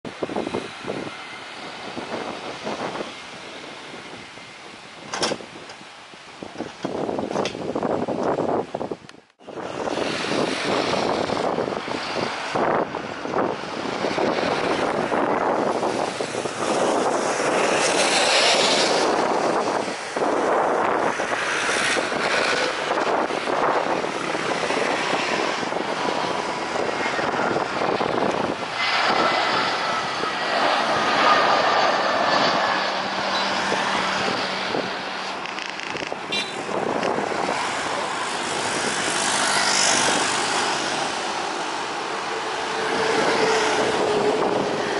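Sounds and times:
jet engine noise: 0.0 - 44.9
faint jet whine: 9.4 - 44.9.

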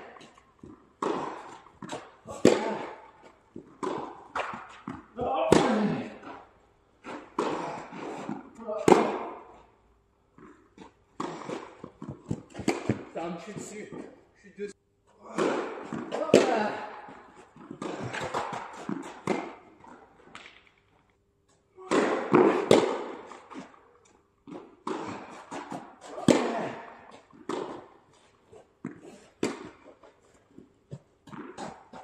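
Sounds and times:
small knocks and court noise: 0.0 - 9.7, 10.3 - 14.1, 15.2 - 32.0
tennis ball hit by racket: 0.2 - 6.4, 7.0 - 9.6, 10.8 - 13.6, 15.2 - 20.7, 21.8 - 23.8, 24.5 - 27.9, 28.8 - 30.1, 30.9 - 32.0.

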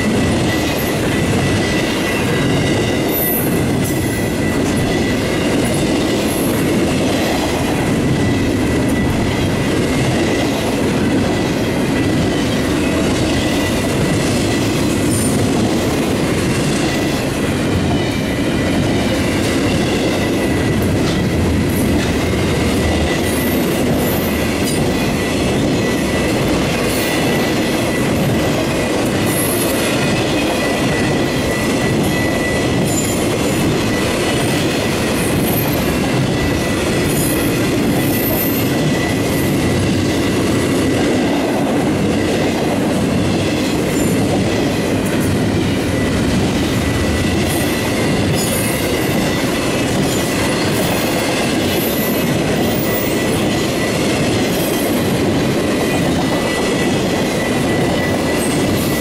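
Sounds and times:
train wheels rumbling on rails: 0.0 - 59.0
high wheel squeal: 22.2 - 39.8.

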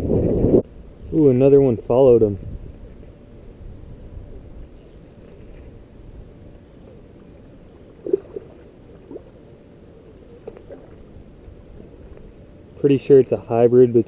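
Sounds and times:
fish splashing in water: 7.8 - 9.5.

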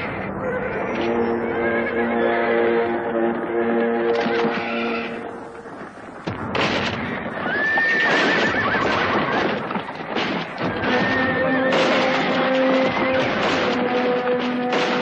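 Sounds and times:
galloping hooves: 0.0 - 15.0
horse whinnying: 0.4 - 2.6, 7.4 - 9.8
held music notes: 0.8 - 6.2.

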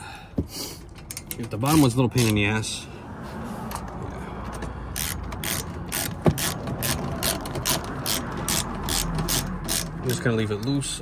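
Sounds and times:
hand ratchet clicking: 1.0 - 2.5, 4.5 - 10.8.

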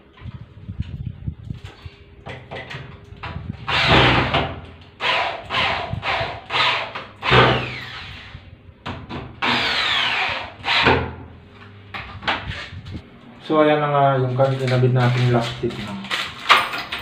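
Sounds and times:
electric drill driving screws: 3.7 - 8.4, 9.4 - 11.0.

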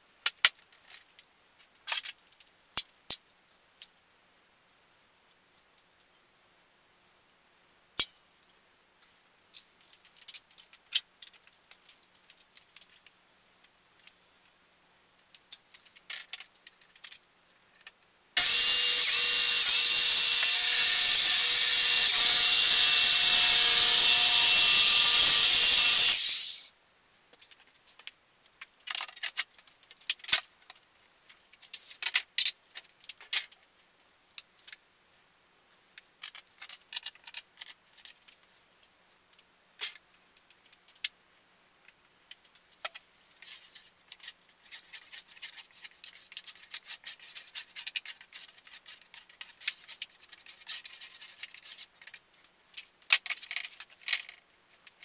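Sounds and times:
circular saw cutting plywood: 18.4 - 26.7.

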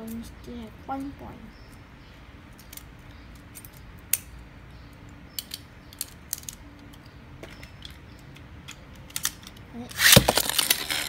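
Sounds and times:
sharp plastic clicks: 2.5 - 11.0.

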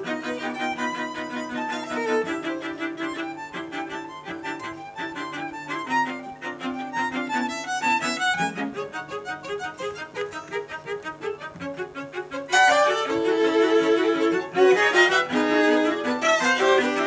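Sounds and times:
string quartet playing: 0.0 - 17.0.

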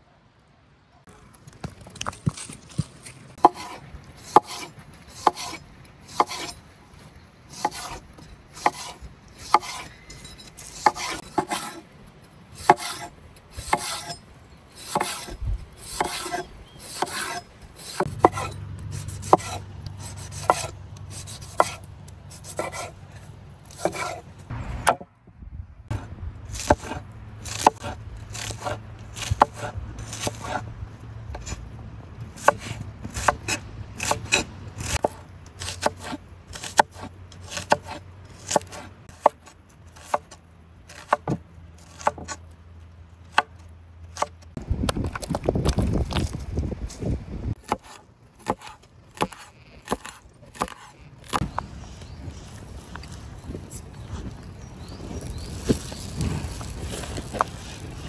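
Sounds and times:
knife chopping on wooden board: 17.0 - 21.8, 47.6 - 51.5.

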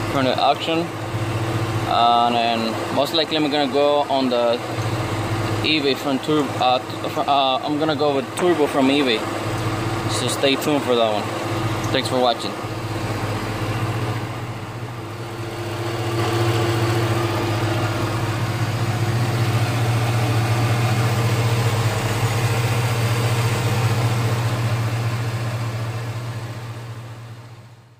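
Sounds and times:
car engine idling: 0.0 - 27.9.

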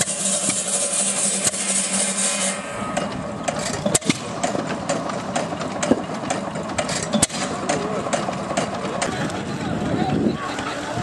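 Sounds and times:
stationary engine firing pops: 2.9 - 9.1.

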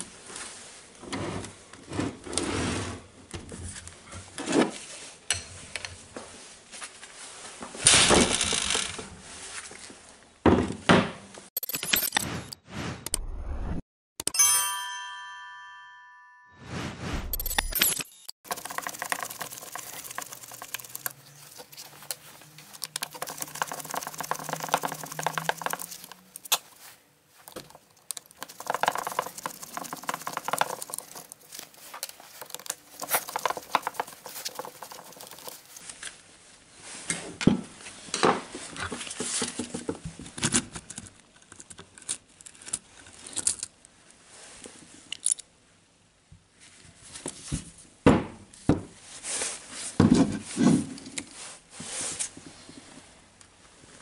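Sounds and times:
gloved hands rustling: 18.5 - 35.9.

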